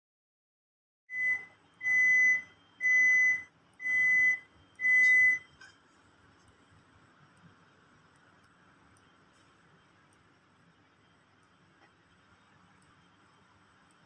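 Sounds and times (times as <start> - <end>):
high-pitched electronic beeps: 1.1 - 5.5.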